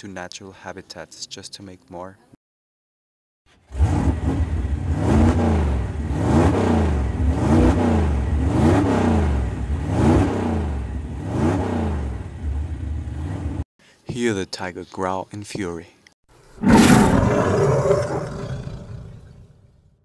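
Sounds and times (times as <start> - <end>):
motor revving up and down: 3.6 - 13.6.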